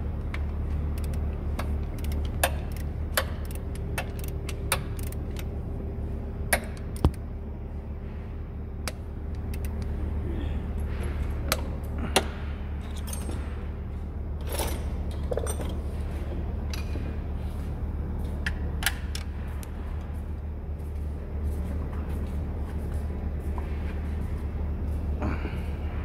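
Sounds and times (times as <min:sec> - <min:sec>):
low hum: 0:00.0 - 0:26.0.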